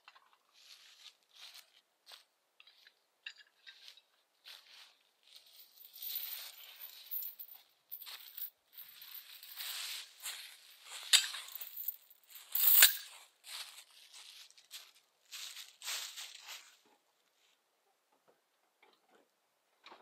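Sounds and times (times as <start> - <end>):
footsteps crunching dry leaves: 9.2 - 11.6, 12.4 - 16.8.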